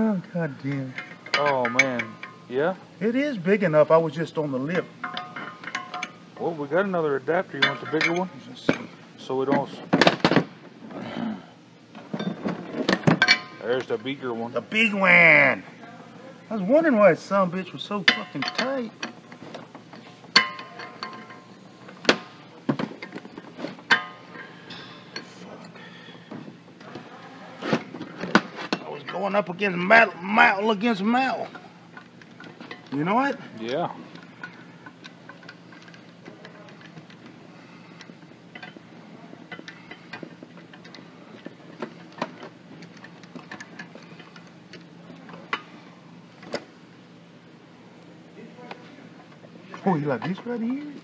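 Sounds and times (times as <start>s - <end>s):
metal cups clinking: 0.6s - 2.5s, 4.6s - 6.2s, 7.5s - 8.9s, 12.2s - 14.0s, 18.0s - 19.2s, 20.3s - 25.8s.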